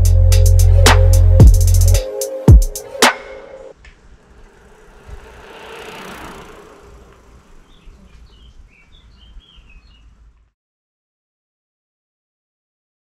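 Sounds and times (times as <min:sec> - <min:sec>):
bicycle tyres rolling on asphalt: 0:03.7 - 0:10.5
bird chirps: 0:06.9 - 0:10.4.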